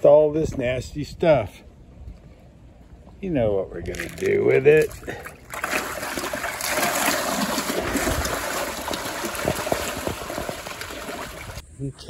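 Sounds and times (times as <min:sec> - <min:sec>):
fish splashing at water surface: 0:03.9 - 0:11.6.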